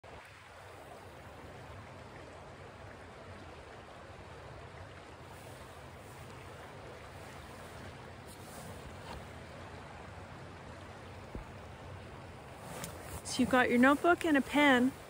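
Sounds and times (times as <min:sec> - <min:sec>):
fast-flowing river rushing: 0:02.7 - 0:15.0.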